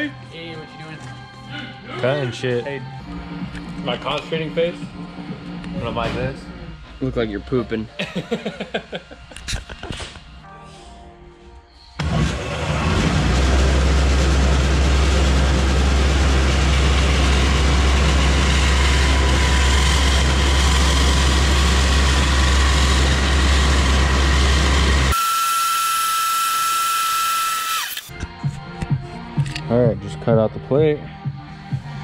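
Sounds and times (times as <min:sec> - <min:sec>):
low machine hum: 0:12.0 - 0:25.2
steady high whine: 0:12.3 - 0:28.2.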